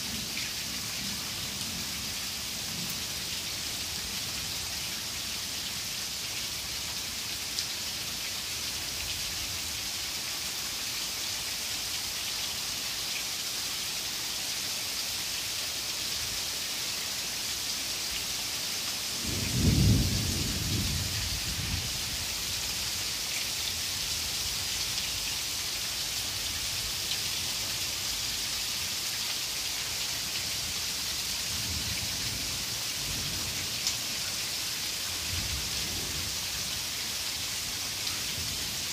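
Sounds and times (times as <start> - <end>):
heavy rain falling: 0.0 - 38.9
thunder clap rumbling: 19.3 - 21.0.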